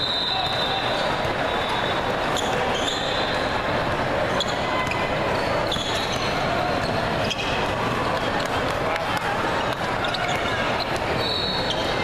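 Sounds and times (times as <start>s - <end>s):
sneakers squeaking on court: 1.1s - 3.6s, 4.3s - 8.6s.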